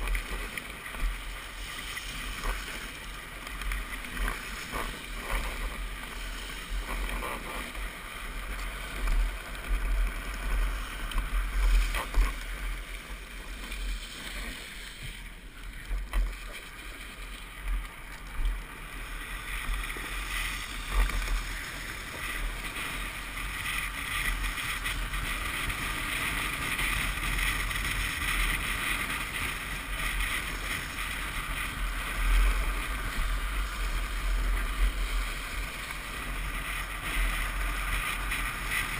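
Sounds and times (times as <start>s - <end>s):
plastic wheels sliding on asphalt: 0.0s - 38.9s.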